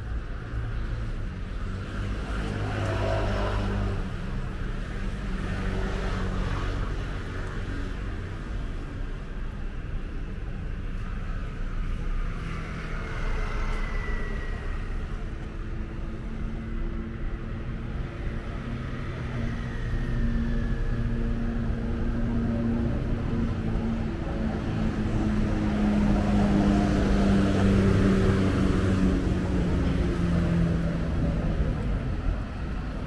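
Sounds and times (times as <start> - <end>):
vehicle engines running: 9.5 - 33.0.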